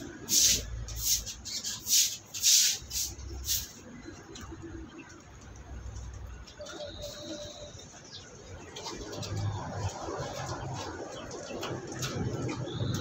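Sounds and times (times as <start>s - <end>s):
brush scrubbing wet floor: 0.2s - 3.7s.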